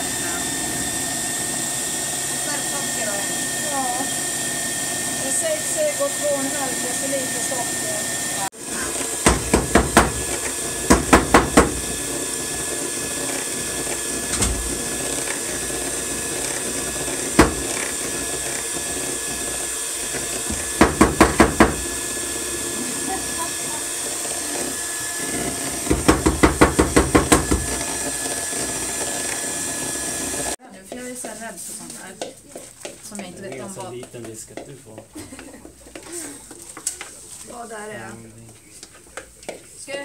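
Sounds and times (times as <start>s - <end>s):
hammer pounding plastic bag: 9.2s - 11.8s, 25.9s - 27.8s.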